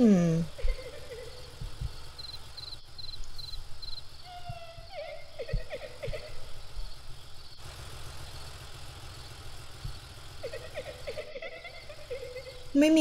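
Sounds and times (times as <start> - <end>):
faint insect chirping: 0.0 - 13.0
cartoon car engine humming: 4.2 - 13.0.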